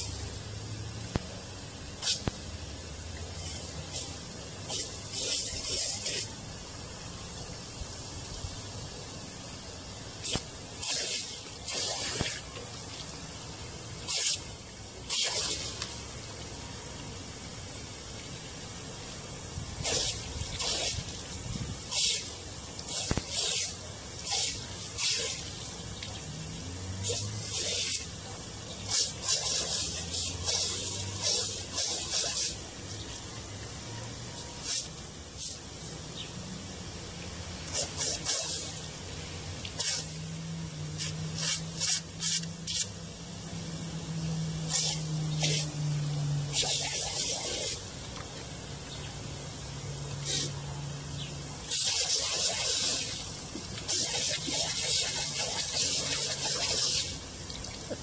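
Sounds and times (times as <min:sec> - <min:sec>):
sprinkler water jet hissing: 0:00.0 - 0:58.0.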